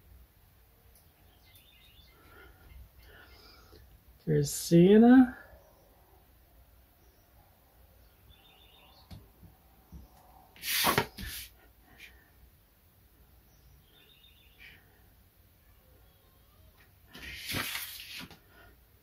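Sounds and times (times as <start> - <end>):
paper rustling on drawing board: 10.6 - 11.5, 17.1 - 18.5.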